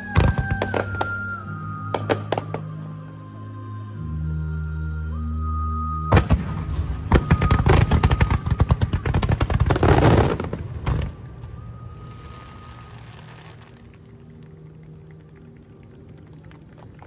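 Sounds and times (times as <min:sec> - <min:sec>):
fireworks crackling: 0:00.0 - 0:01.3, 0:06.2 - 0:17.0
fireworks bangs: 0:06.1 - 0:13.8.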